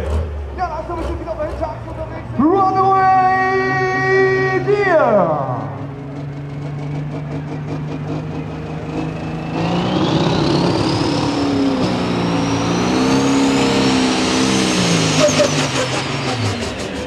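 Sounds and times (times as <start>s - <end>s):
diesel engine accelerating: 0.0s - 17.0s
turbo whistle rising in pitch: 14.7s - 15.9s.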